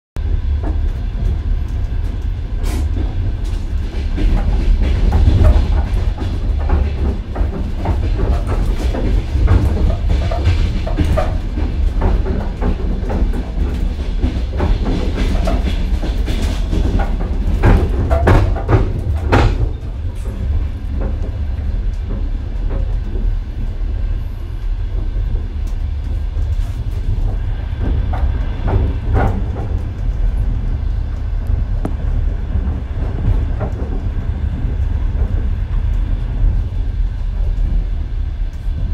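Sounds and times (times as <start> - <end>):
train carriage rumbling: 0.2 - 38.9
clattering knocks from wheels: 0.6 - 23.6, 25.4 - 30.6.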